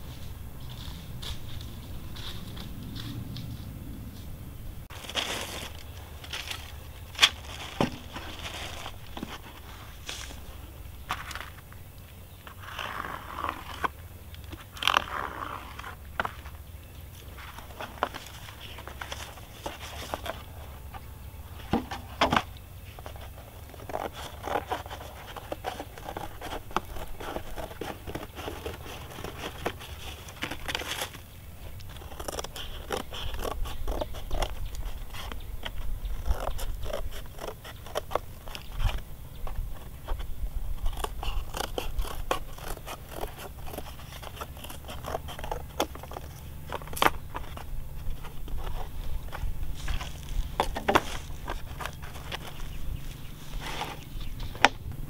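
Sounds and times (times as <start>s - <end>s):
scissors cutting cardboard: 21.7s - 31.2s, 31.8s - 39.0s, 39.6s - 52.7s.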